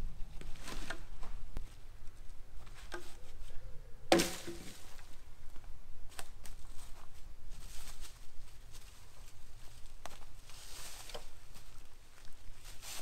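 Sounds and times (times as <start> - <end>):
leafy boughs rustling: 0.0 - 13.0
branches cracking and snapping: 4.1 - 5.1, 10.0 - 13.0
footsteps on leaf litter: 6.1 - 13.0.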